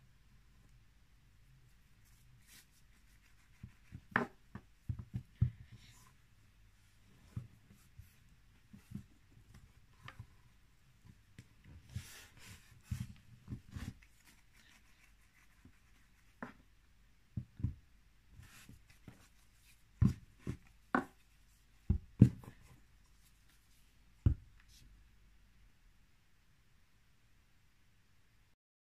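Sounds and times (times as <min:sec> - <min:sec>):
soft rustle: 0:01.5 - 0:16.6, 0:18.4 - 0:25.0.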